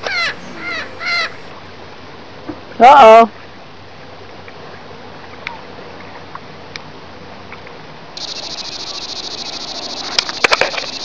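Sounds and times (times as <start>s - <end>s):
insect buzzing: 8.2s - 11.0s
sharp clicks: 8.2s - 11.0s.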